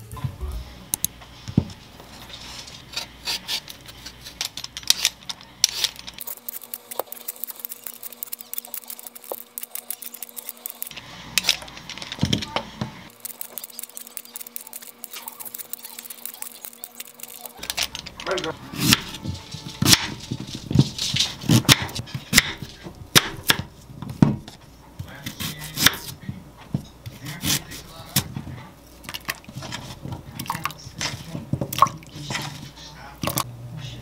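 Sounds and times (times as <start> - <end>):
peeler scraping sweet potato skin: 2.7 - 11.6, 13.1 - 18.0.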